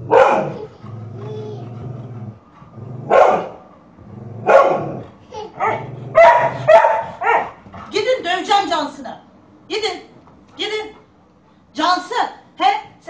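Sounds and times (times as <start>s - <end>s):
dog barking: 0.0s - 0.6s, 3.1s - 3.6s, 4.4s - 5.0s, 5.6s - 7.6s
dog growling low rumble: 0.0s - 7.9s.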